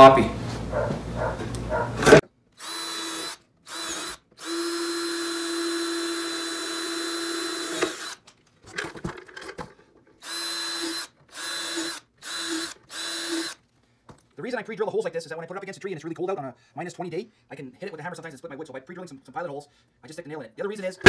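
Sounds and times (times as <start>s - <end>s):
cordless drill motor whine: 2.6s - 8.2s, 10.2s - 13.6s.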